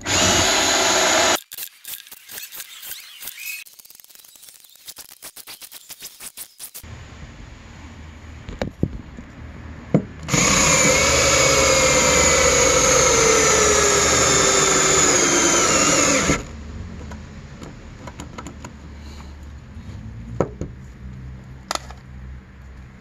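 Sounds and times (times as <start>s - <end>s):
cordless drill driving a screw: 0.0s - 3.6s, 10.3s - 16.5s.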